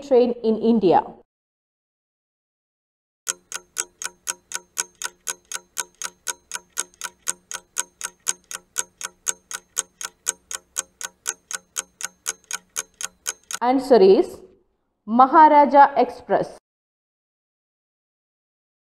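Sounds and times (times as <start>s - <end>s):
clock ticking: 3.3s - 13.6s.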